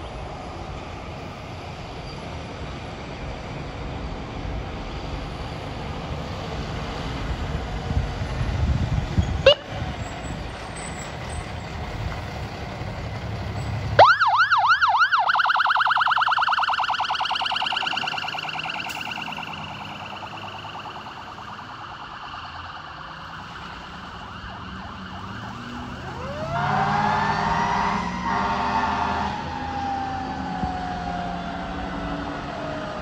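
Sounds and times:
fire engine rumbling: 0:00.0 - 0:33.0
fire engine siren wailing: 0:04.9 - 0:33.0.

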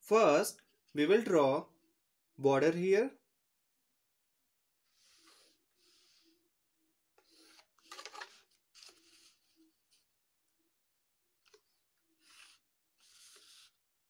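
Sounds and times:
pencil scratching on paper: 0:04.9 - 0:06.5, 0:07.2 - 0:10.1, 0:12.1 - 0:14.0
hand smoothing paper: 0:12.2 - 0:13.7.

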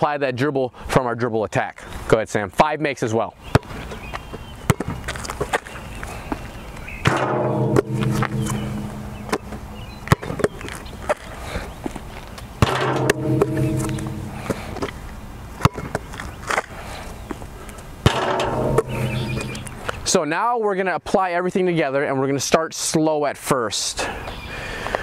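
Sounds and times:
basketball bouncing on asphalt: 0:03.5 - 0:03.9, 0:04.6 - 0:05.6, 0:07.1 - 0:10.9, 0:15.6 - 0:16.0
steady low tone: 0:07.1 - 0:10.1, 0:12.6 - 0:15.3, 0:18.1 - 0:19.9.

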